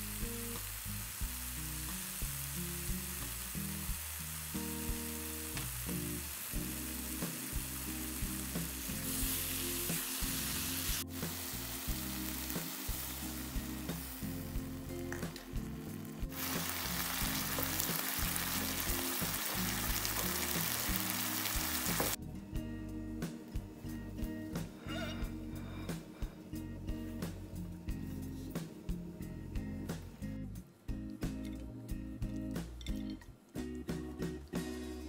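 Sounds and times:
mushrooms sizzling in a frying pan: 0.0s - 22.2s
background music: 0.0s - 35.0s.

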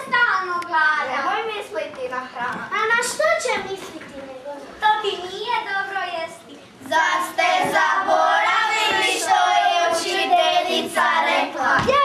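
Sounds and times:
children singing together: 6.8s - 12.0s.

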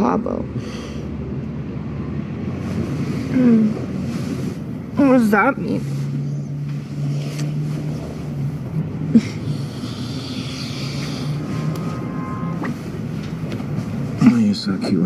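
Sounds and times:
low drone of held tones: 8.2s - 13.4s.

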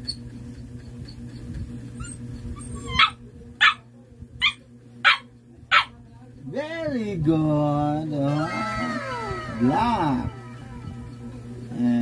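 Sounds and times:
puppy barking: 2.8s - 6.0s.

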